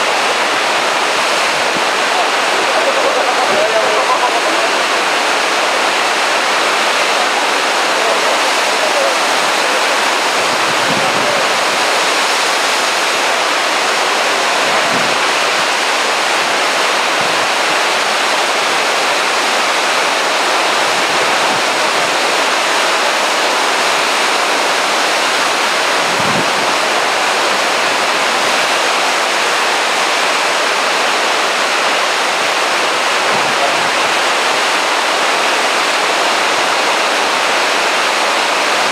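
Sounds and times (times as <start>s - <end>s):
surf breaking on rocks: 0.0s - 38.9s.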